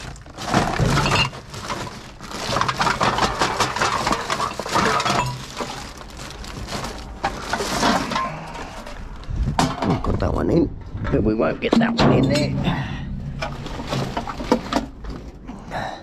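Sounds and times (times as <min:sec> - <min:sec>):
cans and bottles clinking: 0:00.0 - 0:08.5.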